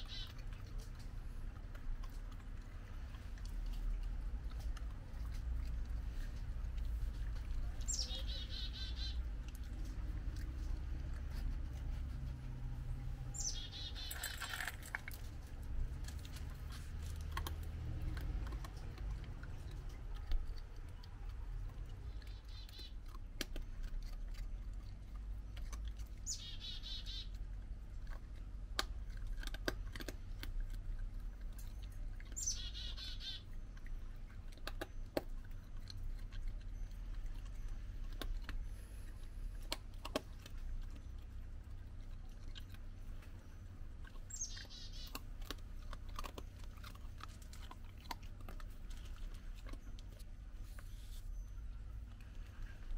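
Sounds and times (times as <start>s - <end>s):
steady low rumble: 0.0s - 14.1s, 14.8s - 32.3s
animal chewing dry kibble: 0.0s - 52.9s
songbird singing a buzzy trill: 7.9s - 9.2s, 13.4s - 14.2s, 26.2s - 27.3s, 32.4s - 33.4s, 44.3s - 45.1s.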